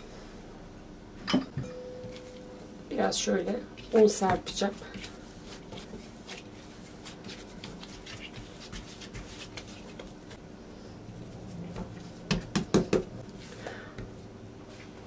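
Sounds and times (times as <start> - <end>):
dough rustling and tapping: 3.8 - 10.4, 11.6 - 15.0
hands patting dough: 3.8 - 10.4, 11.7 - 15.0.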